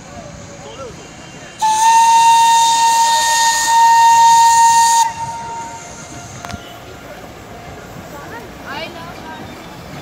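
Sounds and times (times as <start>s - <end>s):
steam locomotive whistle blast: 1.6s - 6.9s.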